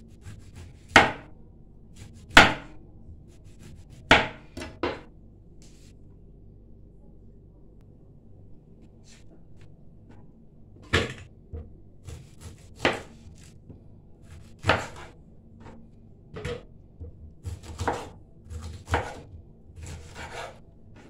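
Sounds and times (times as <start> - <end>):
knife chopping on wooden board: 0.2 - 1.3, 2.1 - 2.8, 3.6 - 5.1, 12.0 - 13.5, 14.3 - 15.1, 16.4 - 20.6.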